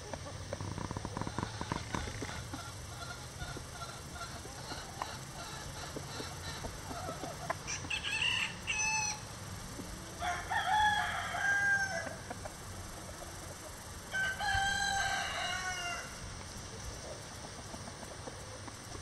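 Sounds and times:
rooster crowing: 7.7s - 9.3s, 10.2s - 12.3s, 14.1s - 16.2s.

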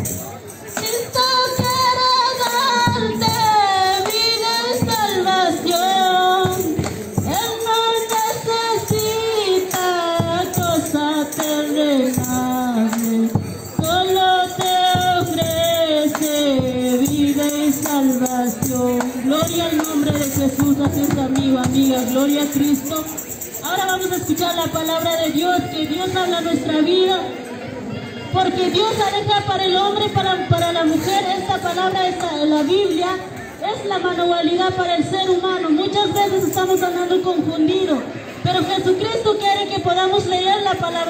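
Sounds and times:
tambourine beat: 0.0s - 25.7s.

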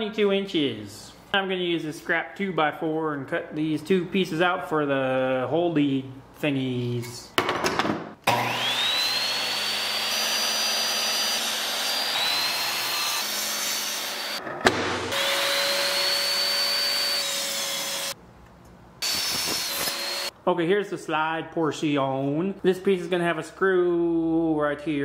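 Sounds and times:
miter saw cutting wood: 8.2s - 14.4s, 15.1s - 18.2s, 19.0s - 20.3s.

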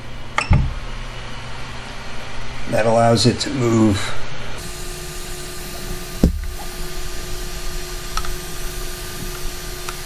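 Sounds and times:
machine whirr with faint hum: 0.0s - 10.0s
sharp knock: 6.2s - 6.6s.

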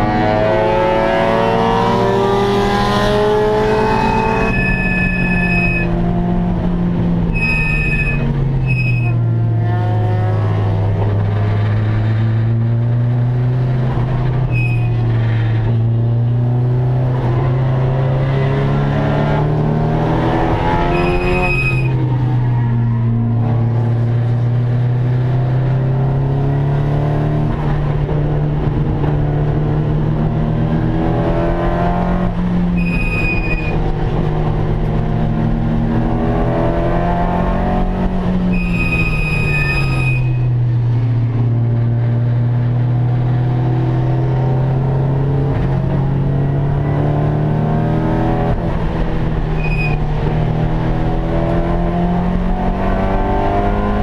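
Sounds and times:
short high squeals: 4.1s - 6.0s, 7.3s - 9.2s, 14.5s - 15.0s, 20.7s - 22.0s, 32.8s - 33.8s, 38.5s - 40.6s, 49.6s - 50.1s.

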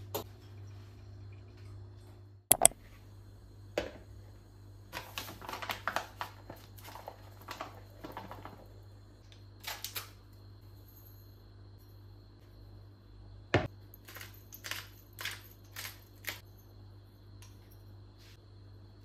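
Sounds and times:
sharp clicks: 2.5s - 2.8s.

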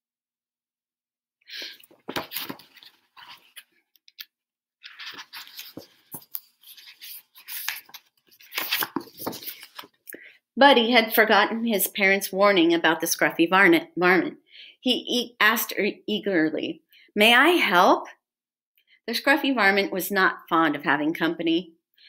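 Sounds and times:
book pages rustling and turning: 1.7s - 10.0s.

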